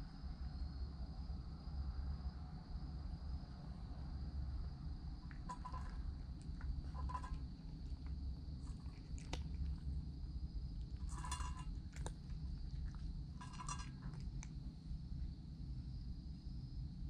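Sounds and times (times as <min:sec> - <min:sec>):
cat chewing and crunching food: 0:04.9 - 0:15.8.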